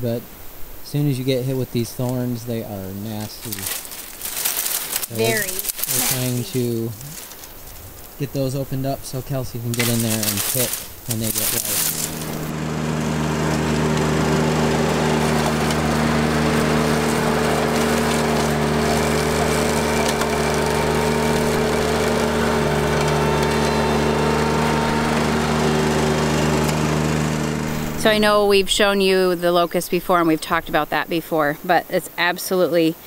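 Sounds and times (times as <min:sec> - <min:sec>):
tractor engine under load: 0:03.1 - 0:31.0
mower deck cutting brush: 0:03.2 - 0:07.6, 0:09.7 - 0:28.4.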